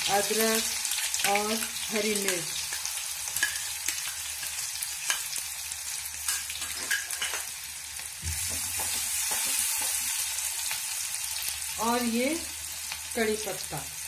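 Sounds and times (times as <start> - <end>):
vegetables sizzling in hot oil: 0.0 - 14.0.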